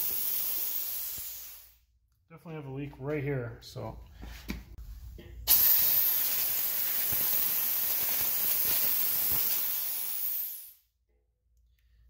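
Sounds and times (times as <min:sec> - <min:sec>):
compressed air hissing: 0:00.0 - 0:01.8, 0:05.4 - 0:10.8.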